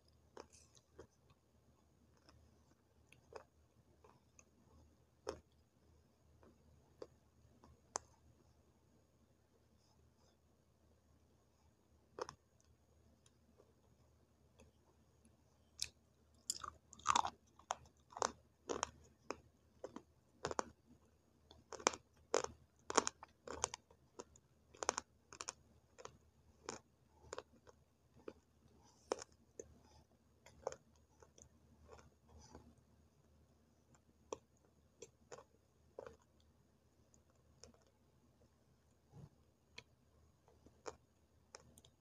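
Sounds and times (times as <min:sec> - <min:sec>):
crunchy clay sticks being chewed: 0:00.3 - 0:01.4, 0:02.1 - 0:04.6, 0:05.2 - 0:05.6, 0:12.1 - 0:13.7, 0:14.6 - 0:32.8, 0:33.8 - 0:36.5, 0:37.1 - 0:38.0, 0:39.2 - 0:42.0.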